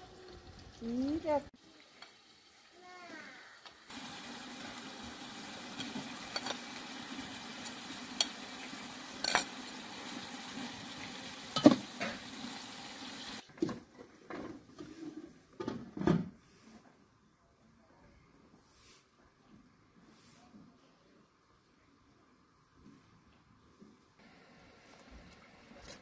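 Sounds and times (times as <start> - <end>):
pot boiling with hiss: 0.0 - 13.7, 24.2 - 26.0
pot lid clinking: 5.8 - 6.6, 9.2 - 9.5, 11.5 - 12.2.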